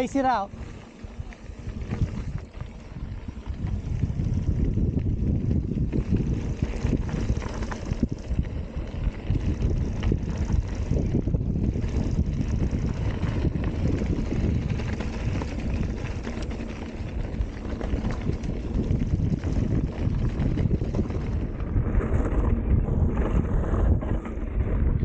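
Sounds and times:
bike clicks and rattles: 0.0s - 25.0s
bike tyres rumbling on dirt: 0.0s - 25.0s
wind buffeting microphone: 0.0s - 25.0s.

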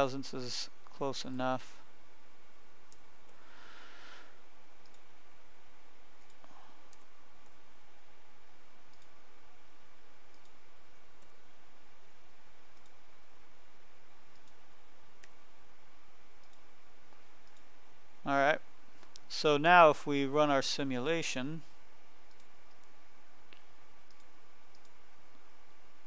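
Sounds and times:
steady background hiss: 0.0s - 26.0s
faint computer mouse clicks: 8.9s - 9.1s, 22.3s - 25.0s.

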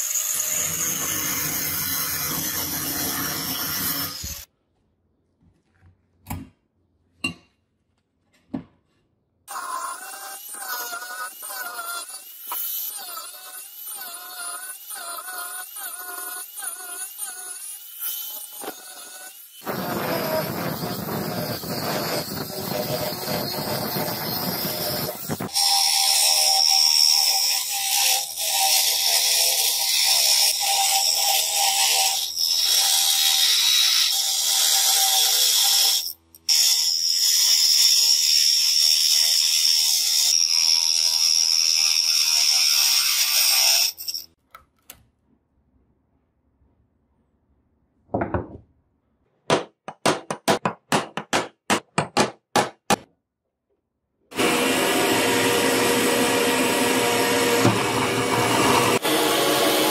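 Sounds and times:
grinding wheel grinding steel: 18.1s - 25.5s, 54.3s - 59.9s.

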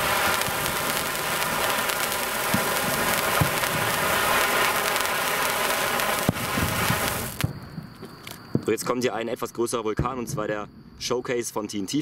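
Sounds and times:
spark firework hissing: 0.0s - 7.5s
firework pops and crackles: 0.0s - 8.9s.

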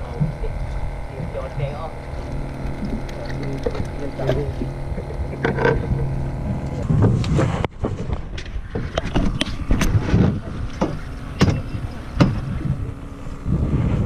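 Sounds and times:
wind and water rumble: 0.0s - 14.0s
gear knocking and clicking: 2.0s - 12.8s.

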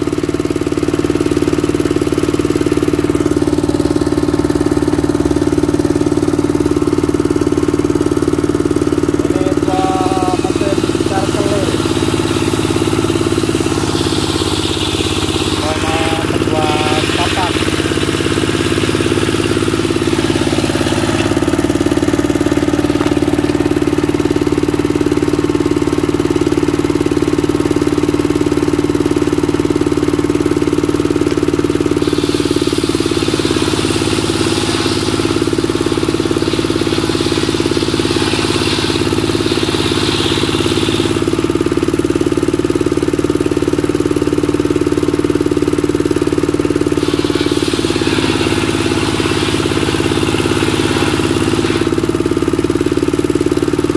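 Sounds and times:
diesel engine running: 0.0s - 53.9s
circular saw cutting timber: 9.2s - 24.4s, 31.7s - 42.0s, 46.7s - 53.9s.

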